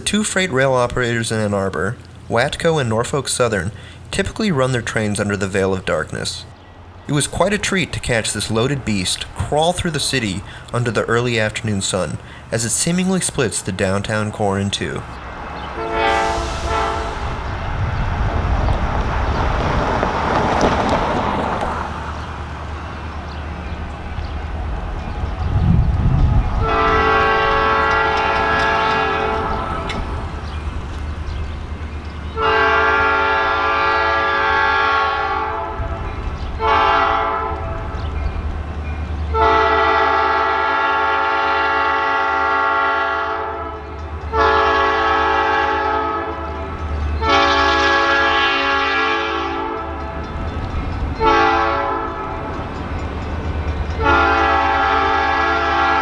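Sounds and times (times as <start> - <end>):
locomotive engine rumble: 0.0 - 56.0
locomotive horn blasts: 15.8 - 17.4, 26.6 - 30.0, 32.3 - 37.9, 39.3 - 50.3, 51.2 - 52.5, 54.0 - 56.0.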